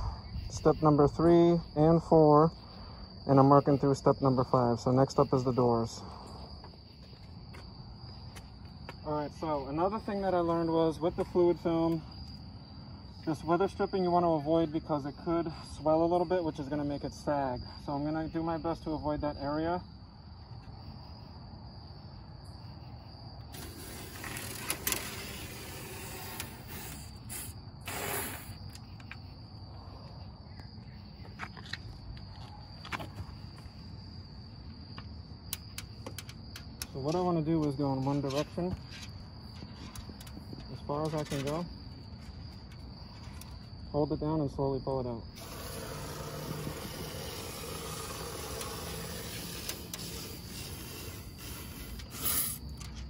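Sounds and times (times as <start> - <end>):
aerosol can spraying hiss: 23.6 - 24.5, 25.1 - 28.6, 45.4 - 52.6.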